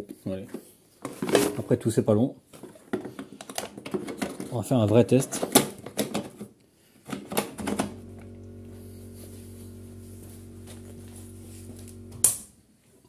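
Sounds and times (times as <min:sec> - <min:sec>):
starter motor humming: 0:07.6 - 0:12.5
starter switch clicks: 0:07.6 - 0:12.5.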